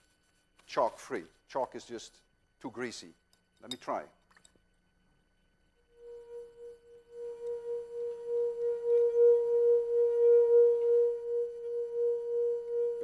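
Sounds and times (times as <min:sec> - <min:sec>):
wine glass rim singing: 0:05.9 - 0:13.0.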